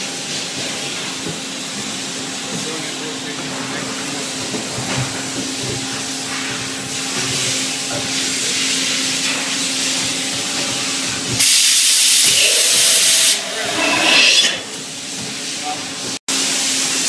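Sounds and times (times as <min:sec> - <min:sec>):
loud hiss: 0:11.4 - 0:14.5.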